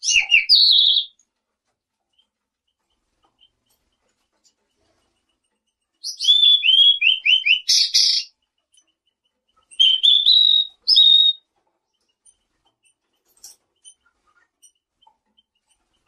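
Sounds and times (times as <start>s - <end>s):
songbird whistling: 0.0s - 1.2s, 6.0s - 8.3s, 9.8s - 11.4s.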